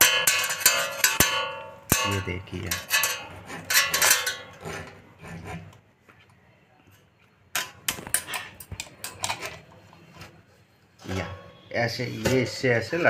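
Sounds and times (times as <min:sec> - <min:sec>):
sharp metal clicks and knocks: 0:00.0 - 0:05.0, 0:07.5 - 0:09.7.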